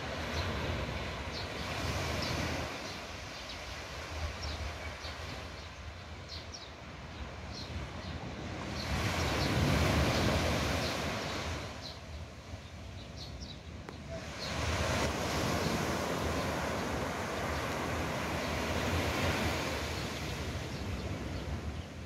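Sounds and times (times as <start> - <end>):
small waves washing on beach: 0.0 - 5.8, 8.2 - 12.0, 14.0 - 22.0.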